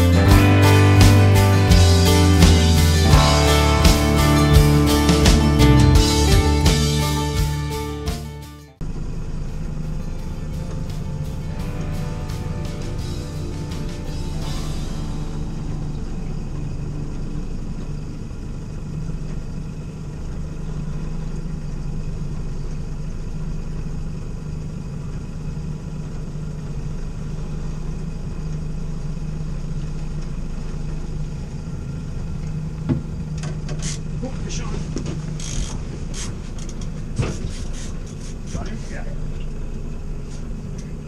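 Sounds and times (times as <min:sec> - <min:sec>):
outboard motor humming: 0:00.0 - 0:08.2, 0:08.8 - 0:41.0.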